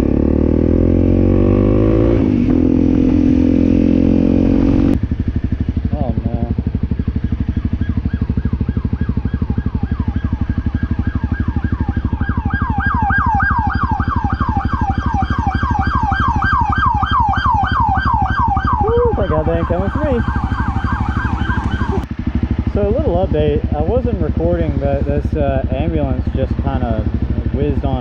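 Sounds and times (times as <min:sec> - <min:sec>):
motorcycle engine pulsing: 0:00.0 - 0:28.0
siren yelping: 0:07.2 - 0:22.1.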